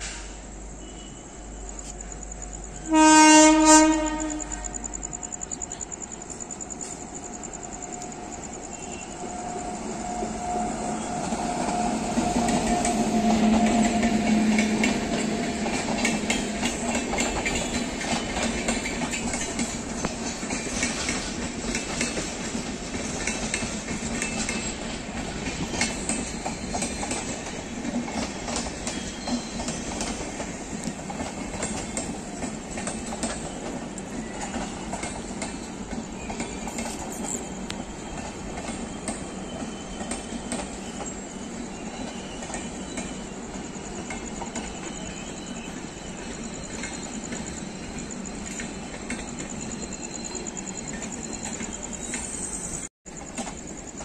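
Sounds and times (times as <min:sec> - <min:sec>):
electric locomotive hum: 0:00.0 - 0:54.0
train coaches rushing past: 0:00.0 - 0:54.0
wheels clattering over rail joints: 0:11.3 - 0:54.0.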